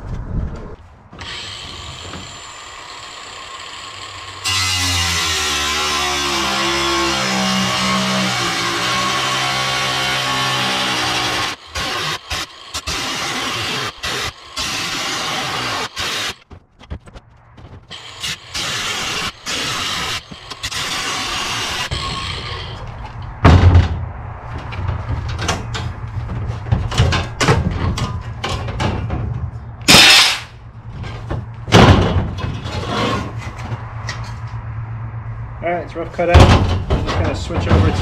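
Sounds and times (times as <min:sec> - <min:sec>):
angle grinder cutting metal: 0:01.2 - 0:16.4, 0:17.9 - 0:22.9, 0:29.9 - 0:30.5
metal sheet clanking: 0:29.9 - 0:33.4.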